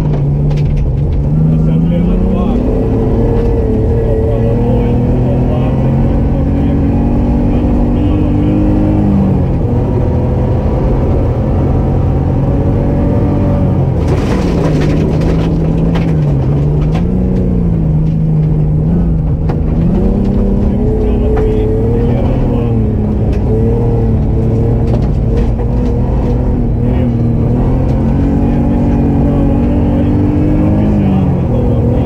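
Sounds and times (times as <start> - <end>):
rally car engine: 0.0 - 32.0
gravel rushing under car: 14.0 - 17.1.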